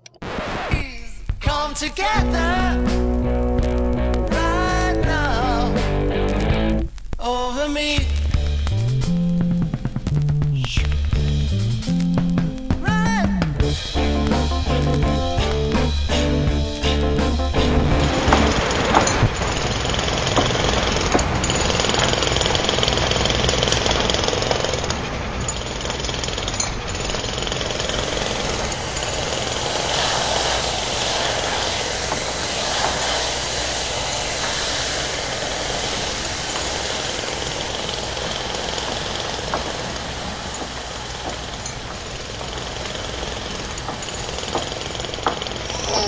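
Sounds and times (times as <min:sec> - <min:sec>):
motor running: 0:13.6 - 0:46.0
hair dryer blowing: 0:17.6 - 0:25.4, 0:27.4 - 0:46.0.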